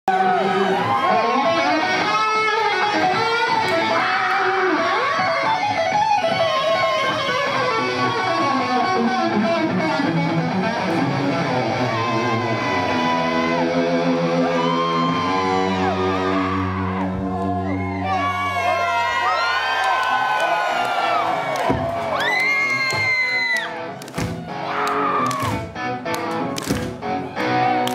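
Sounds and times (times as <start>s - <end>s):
electric guitar through amplifier: 0.2s - 19.3s.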